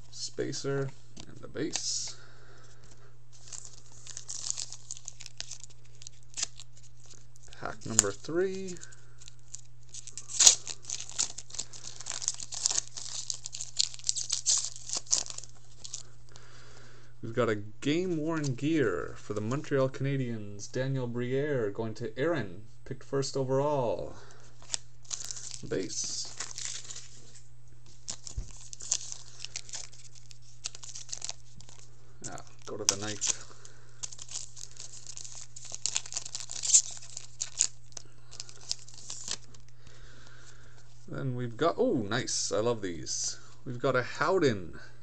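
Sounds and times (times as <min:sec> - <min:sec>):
steady low hum: 0:00.0 - 0:45.0
foil wrapper tearing and crinkling: 0:03.3 - 0:16.1, 0:24.6 - 0:39.7.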